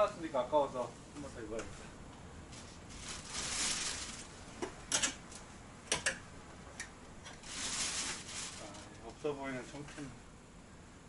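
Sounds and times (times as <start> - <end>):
clothes rustling: 2.5 - 4.4, 7.4 - 8.9.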